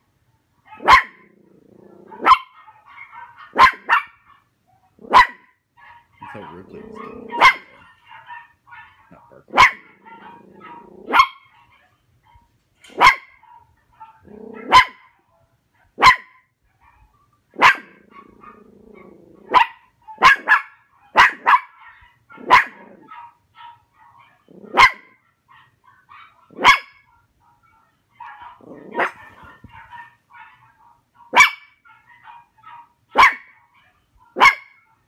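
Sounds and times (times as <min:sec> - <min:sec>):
dog barking: 0:00.7 - 0:01.4, 0:02.0 - 0:35.0
dog growling: 0:01.2 - 0:02.3, 0:06.2 - 0:07.9, 0:09.1 - 0:11.2, 0:14.2 - 0:14.7, 0:17.9 - 0:19.6, 0:22.4 - 0:23.1, 0:24.5 - 0:24.8, 0:28.5 - 0:29.6.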